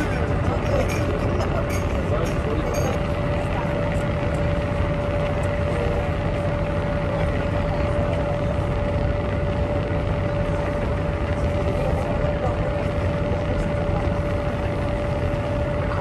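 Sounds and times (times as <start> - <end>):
boat engine drone: 0.0 - 16.0.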